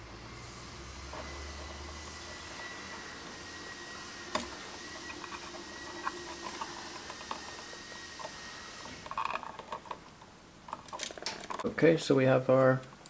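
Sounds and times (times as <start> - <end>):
faint steady hiss: 0.0 - 13.0
small clicks and rustles: 8.2 - 11.7.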